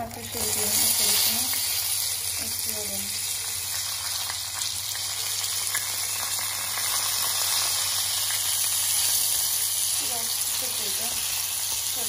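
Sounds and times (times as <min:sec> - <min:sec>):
rice sizzling in hot oil: 0:00.0 - 0:12.0.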